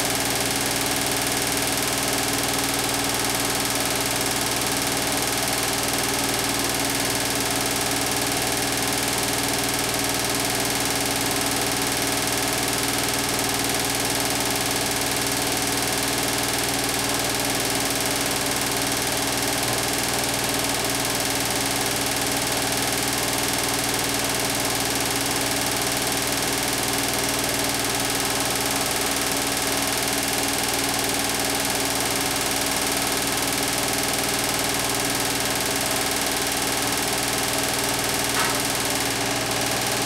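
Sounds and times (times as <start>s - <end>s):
washing machine hum and hiss: 37.8s - 40.0s.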